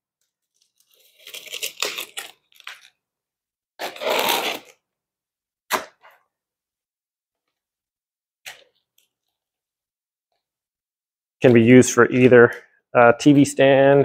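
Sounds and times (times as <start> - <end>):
knife slicing packing tape: 0.8 - 2.9, 3.8 - 4.8.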